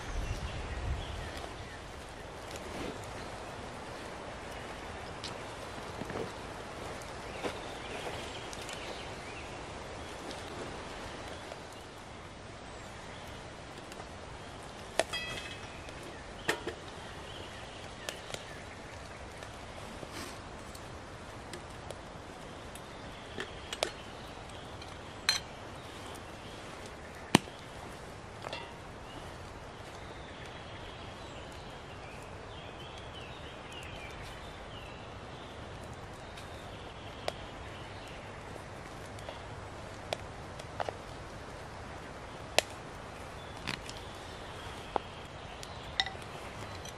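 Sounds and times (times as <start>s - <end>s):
faint steady hiss: 0.0s - 46.9s
sticks clicking in metal stove: 15.0s - 17.0s.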